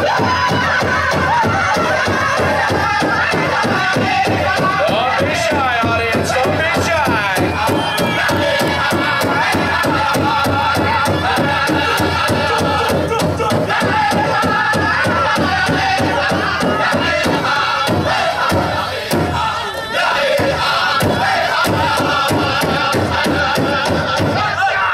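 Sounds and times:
big drum beat: 0.0 - 24.6
group singing in high voices: 0.0 - 24.9.

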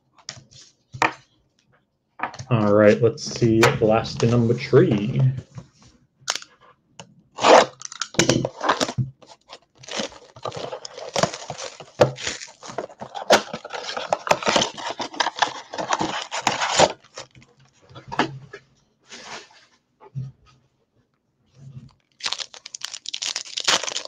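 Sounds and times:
foil packs crinkling: 7.5 - 17.4, 22.0 - 24.0
cardboard box tearing: 9.8 - 17.0.

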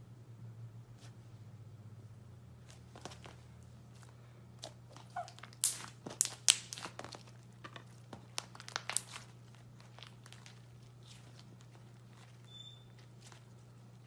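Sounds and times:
faint low hum: 0.0 - 14.0
slime crackling and popping: 4.6 - 14.0.

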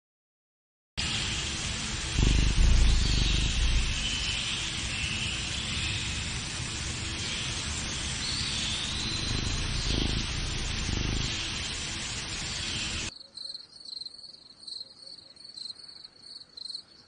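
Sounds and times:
steady hiss: 1.0 - 13.1
low rumble: 1.8 - 13.1.

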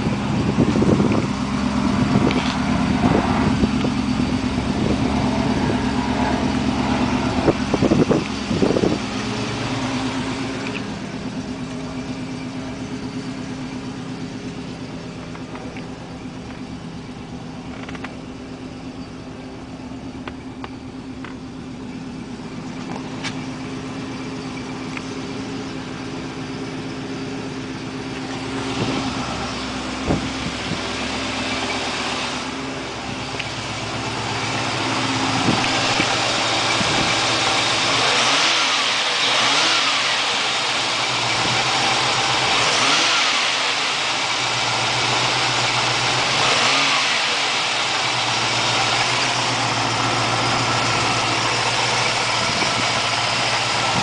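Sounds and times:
car engine idling and revving: 0.0 - 54.0.

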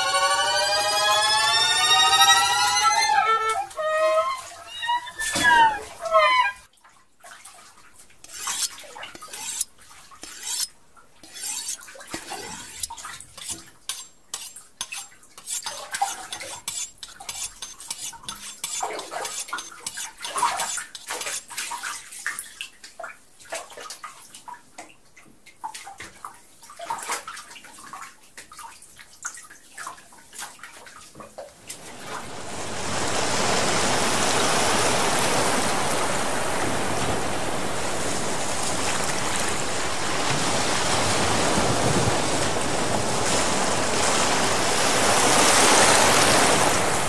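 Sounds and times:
bathwater splashing in a tub: 6.8 - 10.6, 18.7 - 24.8, 25.4 - 47.0.

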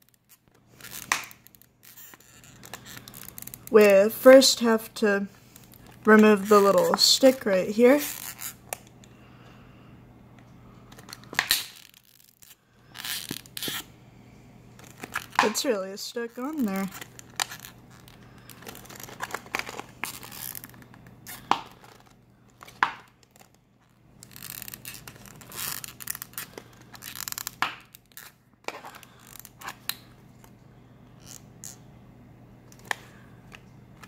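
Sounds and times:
plastic packaging crinkling: 0.0 - 3.9, 5.4 - 9.0, 10.9 - 13.9, 14.8 - 30.5.

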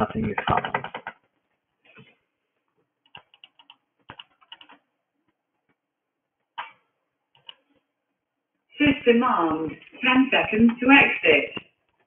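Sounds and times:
computer keyboard typing: 0.0 - 1.4, 3.0 - 4.9, 6.6 - 7.8.

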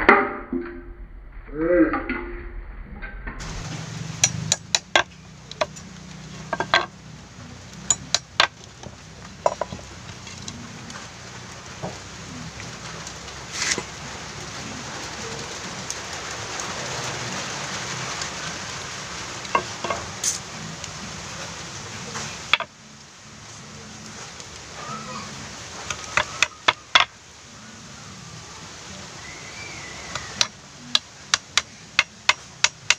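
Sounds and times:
wooden boards and hammer clattering: 3.4 - 7.0, 7.8 - 14.0, 19.5 - 20.5, 22.1 - 22.7, 25.9 - 27.1, 30.1 - 32.9
steady hiss: 3.4 - 32.9.

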